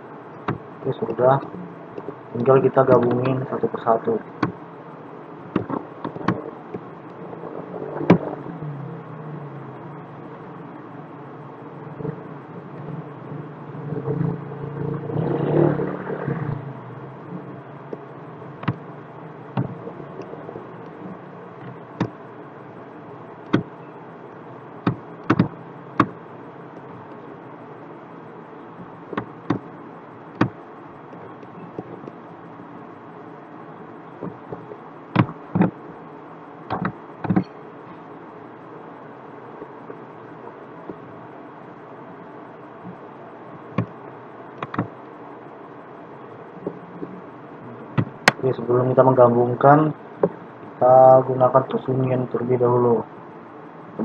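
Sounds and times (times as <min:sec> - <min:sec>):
steady background hiss: 0:00.0 - 0:54.0
computer mouse clicking: 0:36.7 - 0:37.5.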